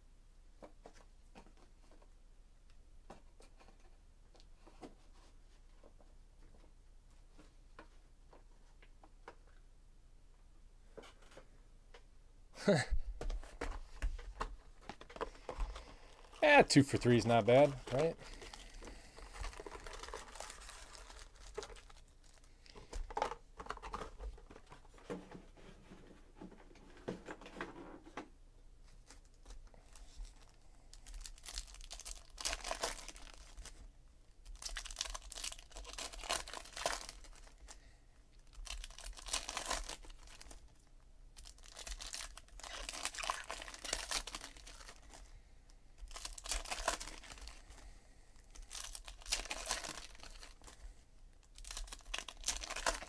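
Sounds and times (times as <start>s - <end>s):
foil wrappers tearing and crinkling: 15.8s - 22.5s, 31.0s - 33.7s, 34.4s - 37.7s, 38.5s - 40.6s, 41.4s - 45.2s, 46.1s - 47.6s, 48.5s - 50.8s, 51.4s - 53.0s.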